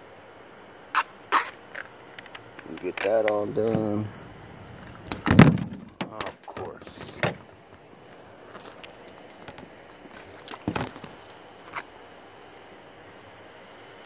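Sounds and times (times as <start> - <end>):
steady faint hiss: 0.0 - 14.0.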